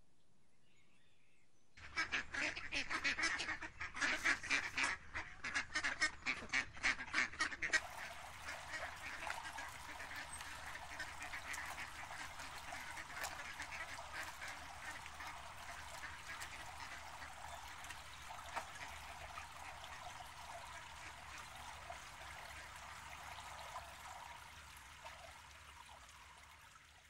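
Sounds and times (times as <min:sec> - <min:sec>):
ducks quacking: 0:01.8 - 0:25.2
stream running over rocks: 0:07.7 - 0:27.0.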